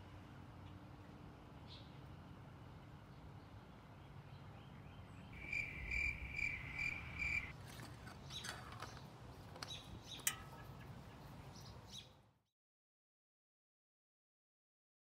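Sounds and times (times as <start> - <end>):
high chirp: 5.4 - 7.5
dipstick clicking and scraping: 7.5 - 10.6.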